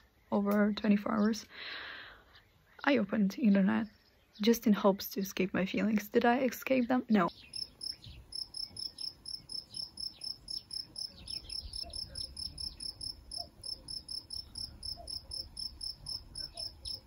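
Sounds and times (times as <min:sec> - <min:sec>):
cricket chirping: 0:07.5 - 0:17.0.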